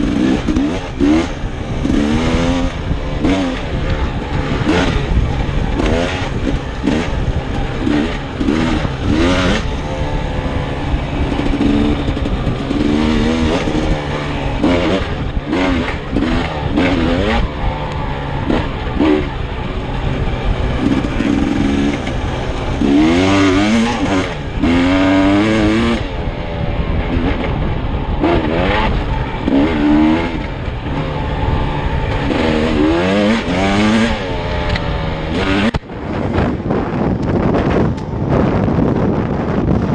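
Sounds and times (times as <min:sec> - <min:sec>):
dirt bike engine revving: 0:00.0 - 0:38.4.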